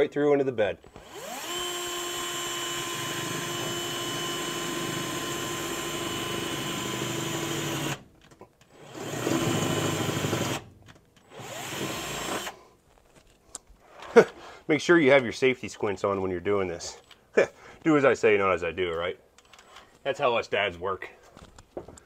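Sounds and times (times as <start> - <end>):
drill whining: 0.8 - 8.1, 8.7 - 12.6.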